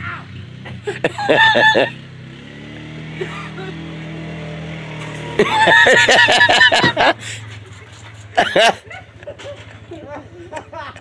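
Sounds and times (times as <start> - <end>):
atv engine running: 0.0 - 11.0
loud shouting: 1.2 - 2.0.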